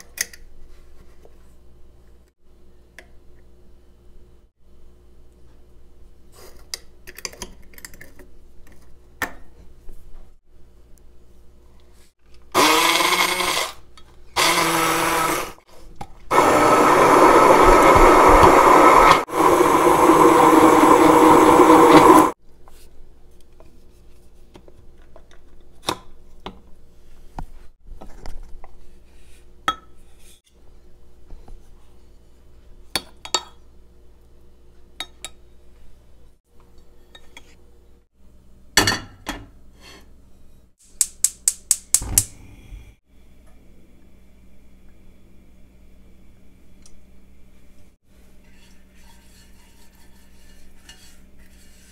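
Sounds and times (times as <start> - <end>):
immersion blender running: 12.6 - 13.8, 14.4 - 15.6, 16.3 - 22.4.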